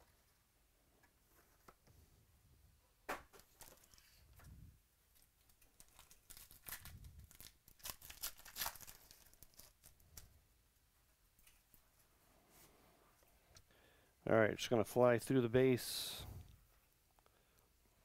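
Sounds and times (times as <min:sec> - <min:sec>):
wrapper tearing and crinkling: 0:05.2 - 0:10.3.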